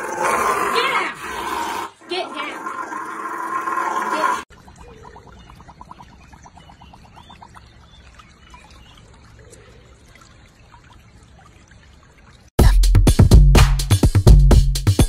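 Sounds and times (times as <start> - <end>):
stream water trickling: 4.4 - 12.6.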